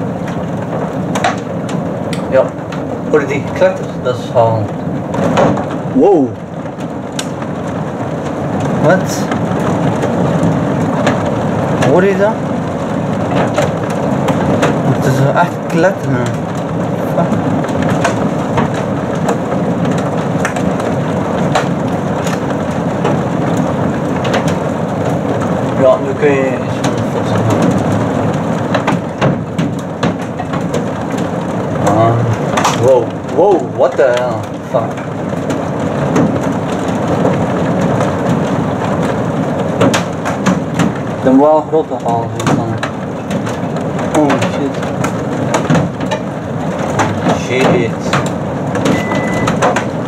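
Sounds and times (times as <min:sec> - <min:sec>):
heavy rain pelting down: 0:00.0 - 0:50.0
thunder rumbling: 0:00.0 - 0:50.0
drops ticking on hard surface: 0:26.8 - 0:41.2.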